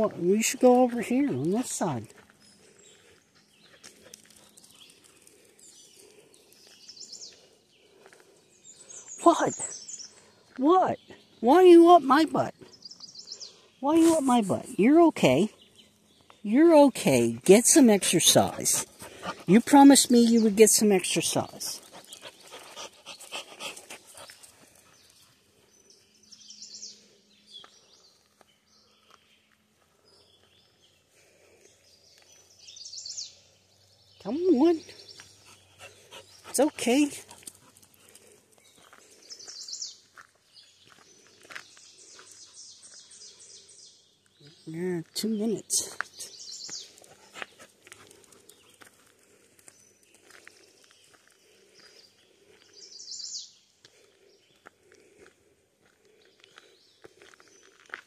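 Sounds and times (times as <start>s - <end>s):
footsteps on gravel: 0.0s - 8.6s, 36.7s - 43.2s, 44.2s - 52.9s, 53.8s - 58.0s
bird chirps: 0.0s - 14.8s, 21.7s - 48.9s, 49.6s - 53.7s
songbirds singing: 0.0s - 58.0s.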